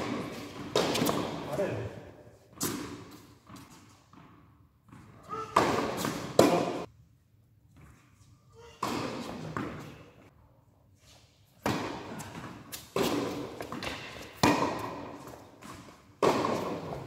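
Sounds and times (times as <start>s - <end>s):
tennis racket hitting ball: 0.0s - 1.5s, 4.9s - 6.9s, 8.7s - 9.9s, 11.6s - 17.0s.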